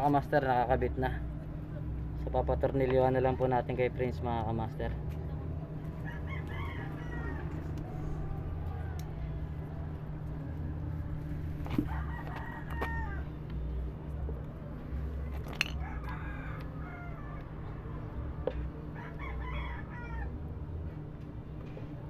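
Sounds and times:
low hum: 0.0s - 22.0s
rooster crowing: 5.9s - 10.5s, 11.7s - 13.4s, 15.6s - 18.2s, 18.8s - 20.5s.

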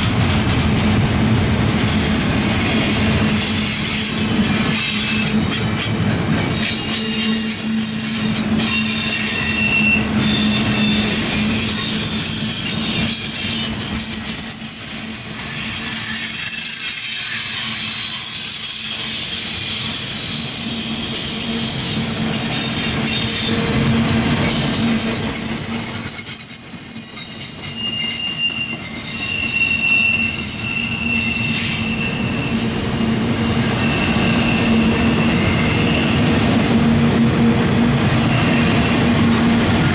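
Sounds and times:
train wheels rumbling on rails: 0.0s - 39.9s
high-pitched wheel squeal: 1.9s - 5.3s, 6.7s - 21.7s, 25.2s - 36.5s.

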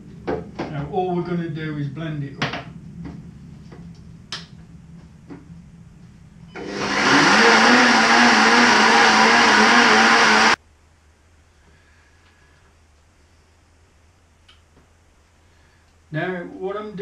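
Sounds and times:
blender motor running: 6.6s - 10.6s.

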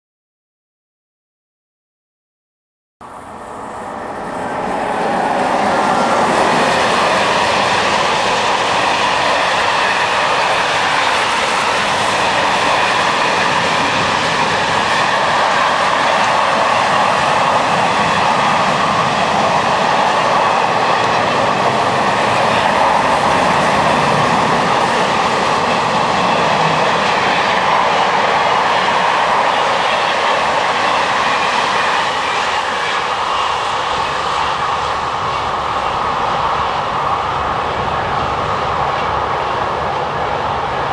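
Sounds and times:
freight train rumbling past: 3.0s - 40.9s.

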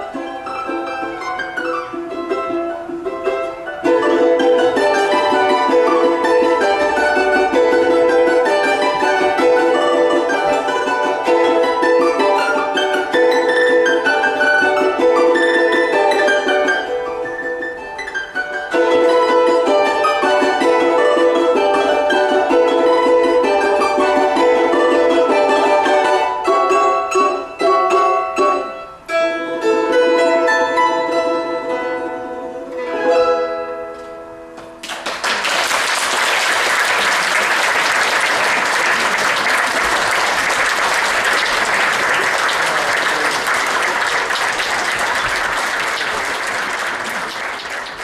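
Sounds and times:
folk string trio playing: 0.0s - 35.4s, 36.0s - 48.0s
audience applause: 34.8s - 48.0s.

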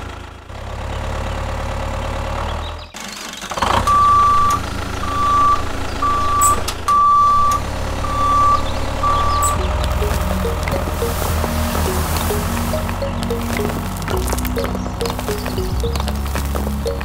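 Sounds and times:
high electronic beep: 8.1s - 17.0s.

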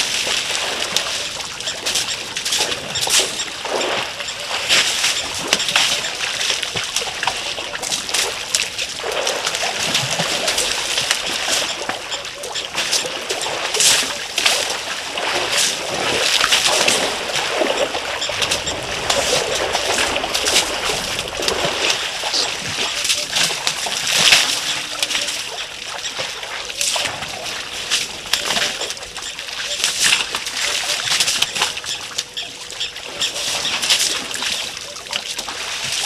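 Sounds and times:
elephants splashing water: 0.0s - 36.0s.

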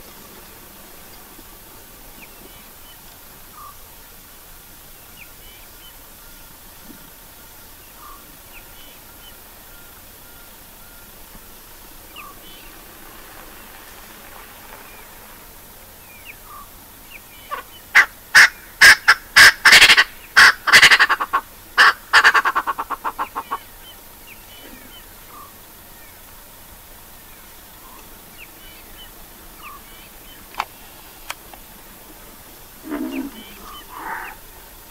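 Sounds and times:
bird calling loudly: 2.1s - 3.9s, 7.6s - 11.2s, 11.8s - 15.3s, 16.0s - 26.2s, 27.4s - 34.9s.

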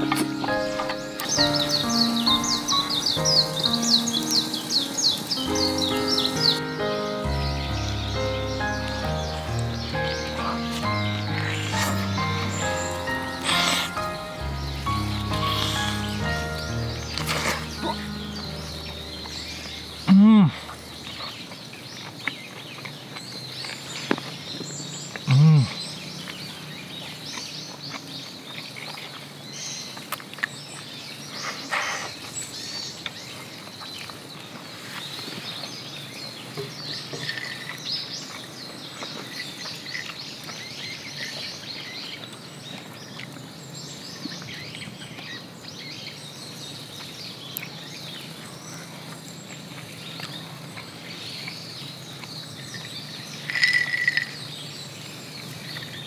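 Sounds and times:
low background noise: 0.0s - 56.0s
small birds chirping: 0.0s - 56.0s
man humming while eating: 20.1s - 20.8s, 25.3s - 25.8s.

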